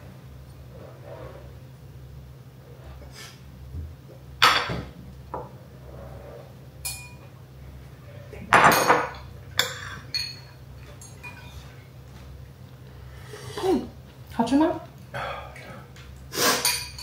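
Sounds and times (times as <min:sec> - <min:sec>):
dishes and utensils clattering: 0:04.4 - 0:05.5, 0:06.8 - 0:07.3, 0:08.5 - 0:11.9, 0:16.5 - 0:17.0.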